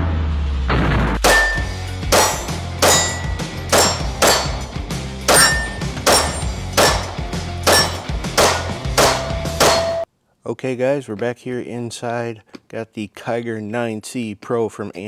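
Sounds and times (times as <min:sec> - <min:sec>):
background music: 0:00.0 - 0:10.1
pistol firing: 0:01.2 - 0:04.7, 0:05.3 - 0:10.0.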